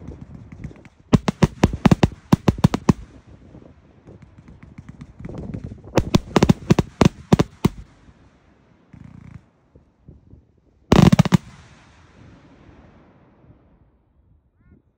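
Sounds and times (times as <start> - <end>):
firework bangs and cracks: 0.0 - 9.5, 10.9 - 13.0.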